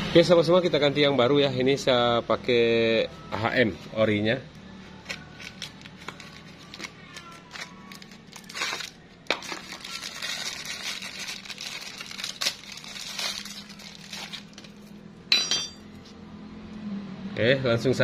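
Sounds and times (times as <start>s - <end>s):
plastic bag crinkling and tearing: 5.1s - 14.9s.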